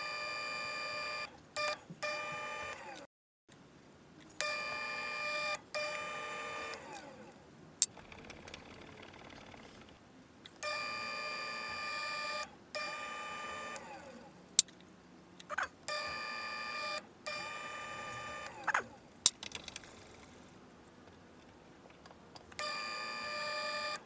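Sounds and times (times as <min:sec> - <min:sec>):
drill bit whining into metal: 0:00.0 - 0:03.1, 0:04.4 - 0:07.2, 0:10.6 - 0:14.2, 0:15.9 - 0:18.9, 0:22.6 - 0:24.0
sharp clicks: 0:16.8 - 0:20.4.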